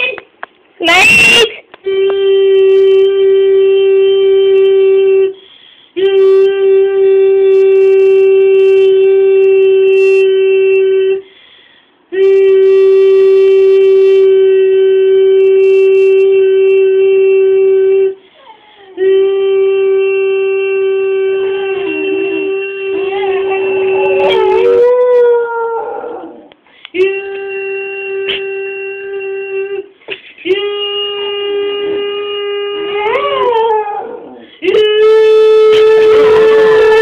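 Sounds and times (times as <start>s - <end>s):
wind instrument steady note: 20.1s - 25.1s
dog howling: 21.3s - 26.5s, 32.6s - 37.0s.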